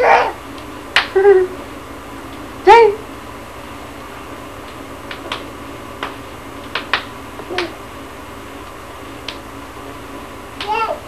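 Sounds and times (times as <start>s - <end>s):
toddler vocal sound: 0.0s - 0.4s, 10.6s - 11.0s
steady low hum: 0.0s - 11.0s.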